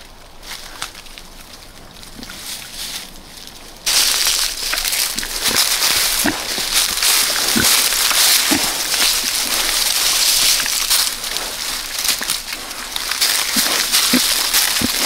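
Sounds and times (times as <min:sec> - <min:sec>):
pigs rustling through dry litter: 0:00.0 - 0:15.0
pigs grunting: 0:04.4 - 0:15.0.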